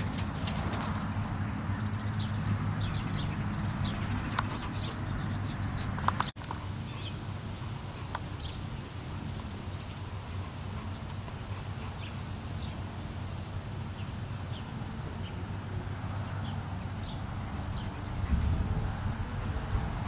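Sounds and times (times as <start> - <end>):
steady low hum: 0.0 - 20.0
sharp clicks: 5.5 - 6.6.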